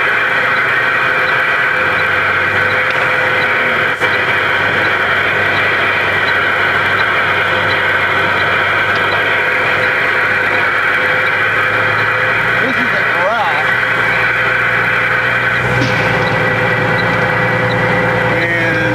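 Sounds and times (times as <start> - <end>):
faint regular ticking: 0.0 - 18.5
vehicle engine running: 0.0 - 18.9.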